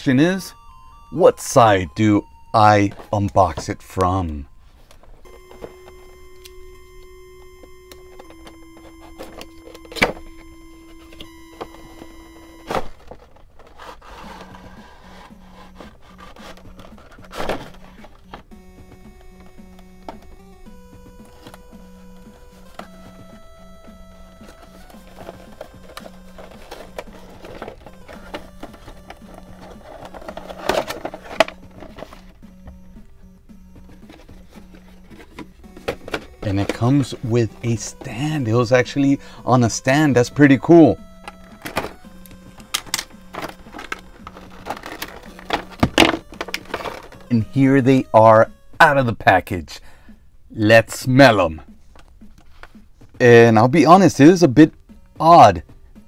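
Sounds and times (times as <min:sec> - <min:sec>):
quiet background music: 0:00.0 - 0:56.0
packaging clicks and rustles: 0:00.3 - 0:33.0, 0:33.7 - 0:48.6
plastic crinkling: 0:24.4 - 0:32.4, 0:42.6 - 0:47.4.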